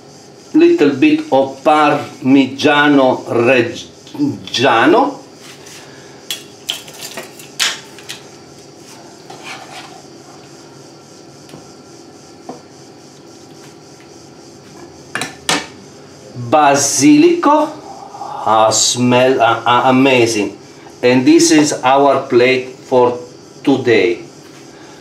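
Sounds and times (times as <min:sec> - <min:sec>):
steady low hum: 0:00.0 - 0:25.0
spatula scraping in a pan: 0:08.8 - 0:10.4.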